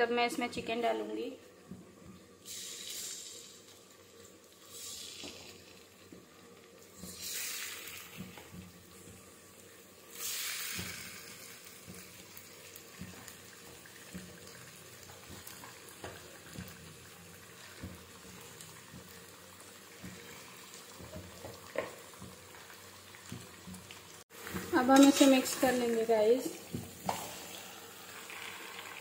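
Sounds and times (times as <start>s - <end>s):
chicken sizzling in hot oil: 0.0s - 29.0s
loud hiss of food into oil: 2.4s - 3.6s, 4.6s - 5.7s, 7.0s - 8.2s, 10.1s - 11.7s.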